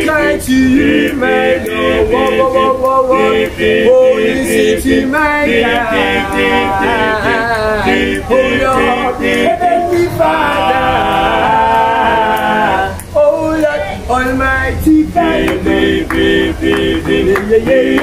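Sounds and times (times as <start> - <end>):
men singing in harmony: 0.0 - 18.0.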